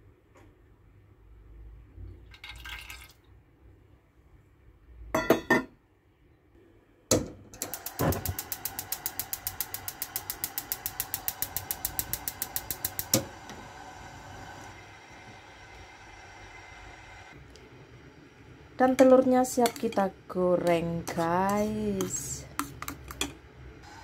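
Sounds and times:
gas stove igniter clicking: 7.1 - 13.6
gas burner hissing: 7.6 - 24.0.

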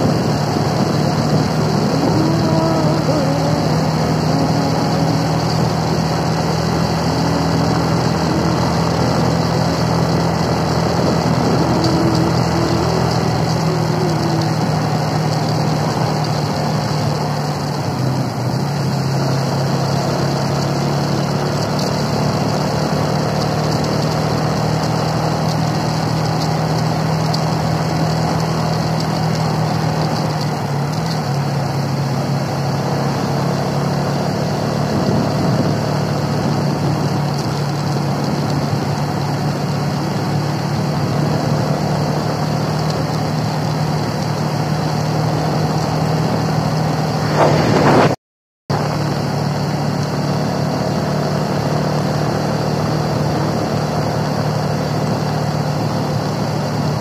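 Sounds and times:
wind noise: 0.0 - 16.4, 34.8 - 39.5, 45.9 - 49.3
motorcycle engine running: 0.0 - 57.0.

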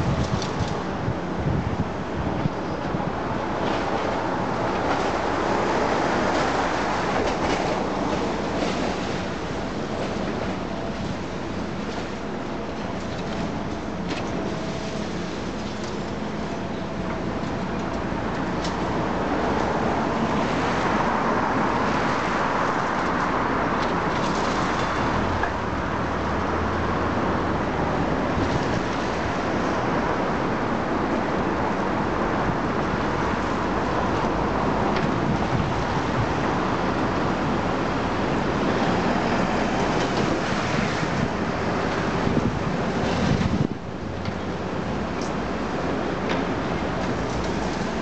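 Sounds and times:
excavator running: 0.0 - 20.2.

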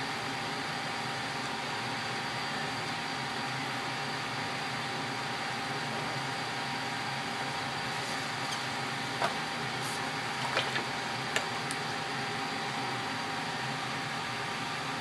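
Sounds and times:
kitchen background hiss: 5.8 - 13.0.

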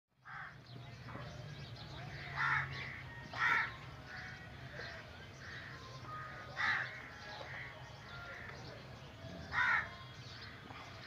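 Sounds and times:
crows cawing: 0.2 - 0.6, 2.1 - 8.6, 9.5 - 10.0.

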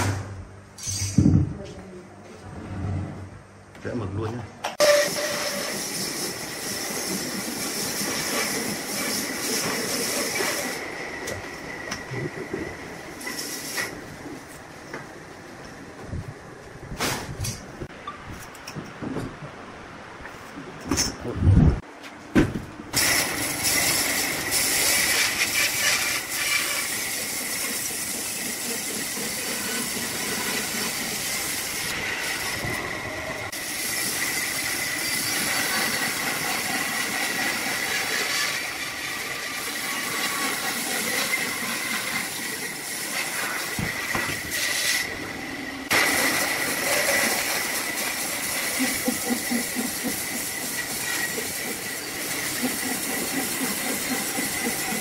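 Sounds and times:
bandsaw cutting through log: 23.4 - 32.7.

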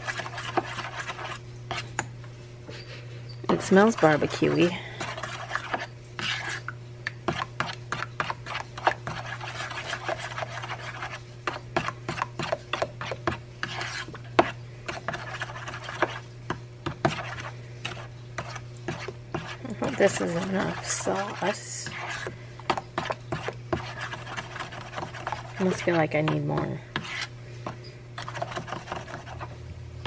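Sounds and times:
metal spoon stirring sauce: 3.5 - 16.3, 16.9 - 27.3.

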